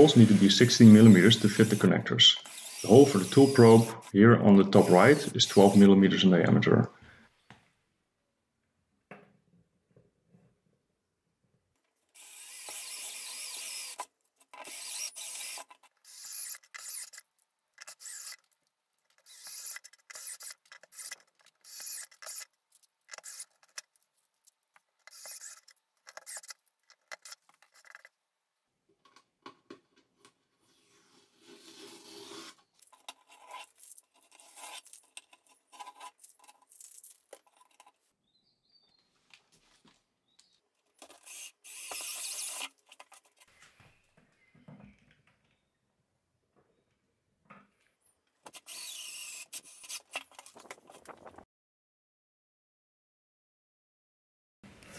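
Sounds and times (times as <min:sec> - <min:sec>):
drill bit rasping through plastic: 0:00.0 - 0:05.9, 0:12.2 - 0:24.0, 0:25.0 - 0:28.1, 0:41.0 - 0:42.8, 0:48.5 - 0:50.2.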